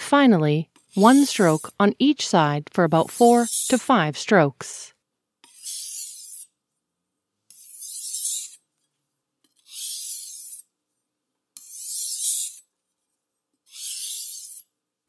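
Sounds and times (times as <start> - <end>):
knife scraping on whetstone: 0.8 - 1.8, 3.0 - 3.8, 5.4 - 6.6, 7.5 - 8.6, 9.5 - 10.7, 11.6 - 12.7, 13.7 - 14.7.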